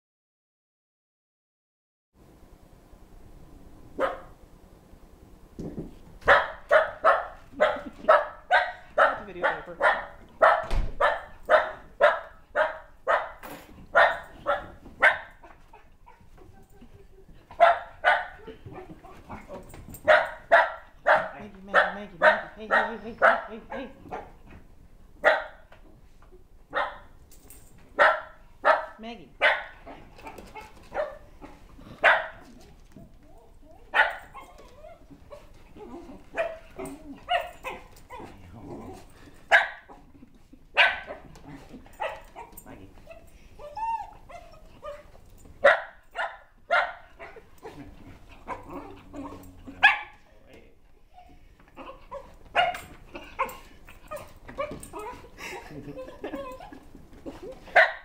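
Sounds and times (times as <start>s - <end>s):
dog barking excitedly: 4.0s - 4.4s, 6.2s - 16.2s, 17.5s - 24.4s, 25.2s - 25.7s, 26.7s - 27.2s, 27.9s - 32.8s, 33.8s - 38.4s, 39.5s - 40.1s, 40.7s - 50.2s, 51.8s - 55.3s, 57.7s - 58.0s.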